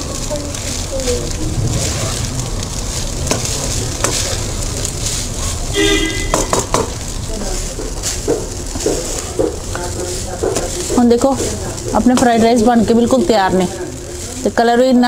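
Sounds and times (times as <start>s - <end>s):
rice sizzling in a wok: 0.0s - 15.0s
spatula scraping and knocking pan: 2.9s - 13.3s.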